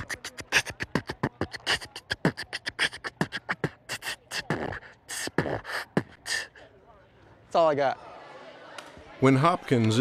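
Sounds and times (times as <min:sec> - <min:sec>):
person beatboxing: 0:00.0 - 0:06.6.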